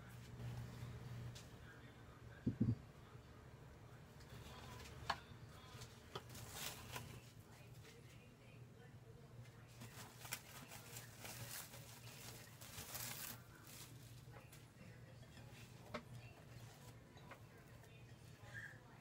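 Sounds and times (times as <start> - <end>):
low steady hum: 0.0 - 19.0
glass bowl knocks: 2.5 - 2.8
cling film crinkling: 6.2 - 7.3, 9.7 - 14.4.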